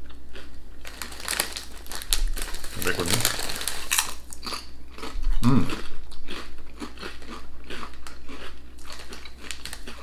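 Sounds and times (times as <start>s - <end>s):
crunching potato crisps: 0.0s - 10.0s.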